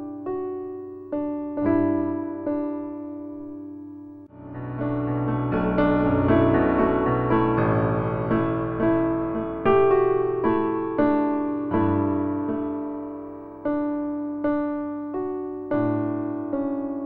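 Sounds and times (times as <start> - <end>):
soft piano chords: 0.0 - 17.0.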